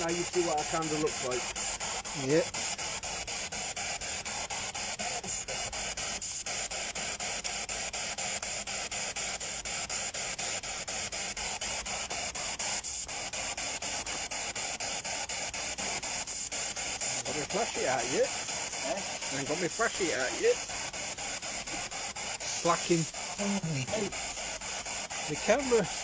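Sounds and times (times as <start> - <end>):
radio static hiss: 0.0 - 26.0.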